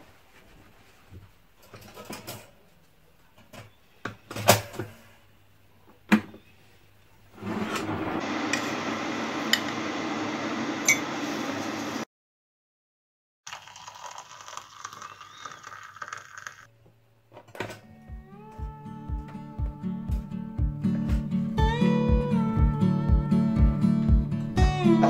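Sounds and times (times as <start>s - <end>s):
electric kettle heating: 7.4s - 12.0s.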